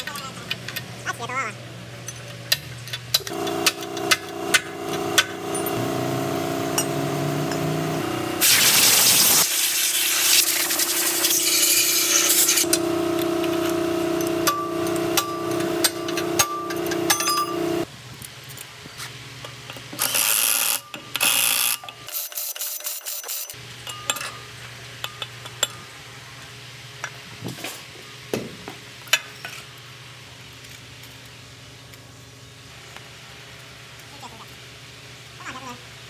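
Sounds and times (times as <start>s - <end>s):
pneumatic impact wrench: 3.2s - 17.9s, 20.0s - 23.6s
loud noisy burst: 8.4s - 13.2s
steel parts clinking: 11.2s - 17.9s, 20.0s - 25.8s.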